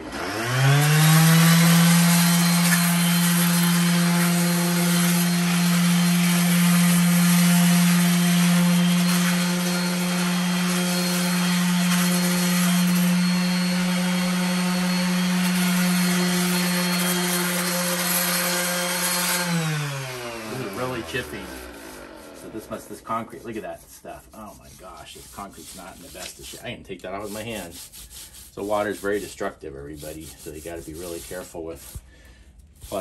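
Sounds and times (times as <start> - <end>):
sander motor hum: 0.0 - 23.3
sander scraping concrete: 0.0 - 33.0.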